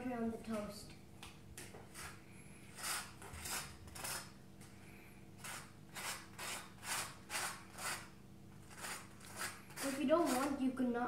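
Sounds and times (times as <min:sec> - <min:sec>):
knife scraping butter on toast: 0:01.9 - 0:04.4, 0:05.4 - 0:10.6.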